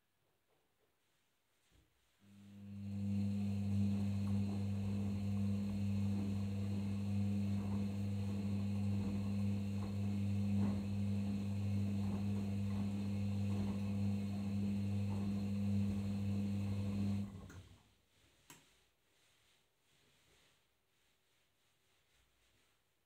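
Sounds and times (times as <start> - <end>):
washing machine humming: 2.2 - 17.7.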